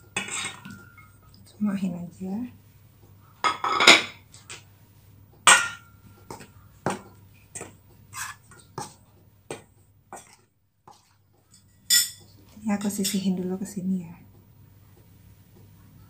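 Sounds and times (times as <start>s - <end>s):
knocks and scrapes in steel bowl: 0.2s - 1.1s, 5.5s - 11.1s.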